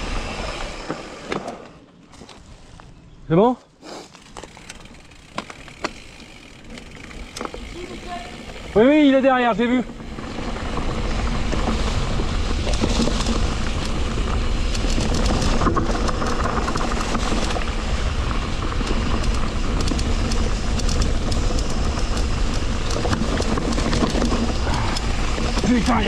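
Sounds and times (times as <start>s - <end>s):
bike rattles and clicks: 0.0s - 3.0s, 3.9s - 26.0s.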